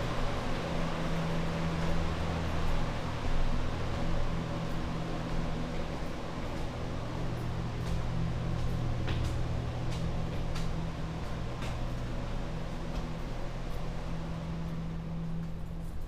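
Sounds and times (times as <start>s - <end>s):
low machine hum: 0.0s - 16.0s
footsteps on hard stairs: 7.4s - 14.0s.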